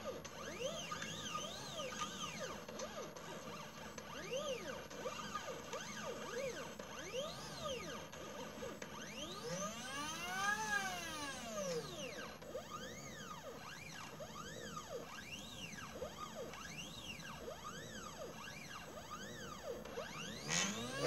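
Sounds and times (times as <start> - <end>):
stepper motors whining: 0.0 - 21.0.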